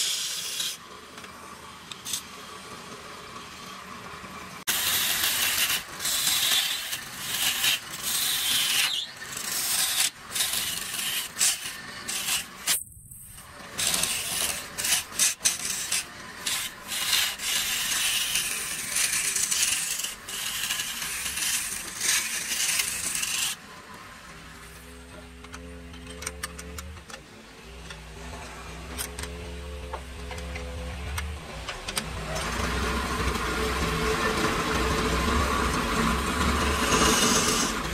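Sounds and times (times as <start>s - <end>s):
steady low hum: 23.6s - 37.9s
harsh rubbing hiss on lathe: 36.7s - 37.9s.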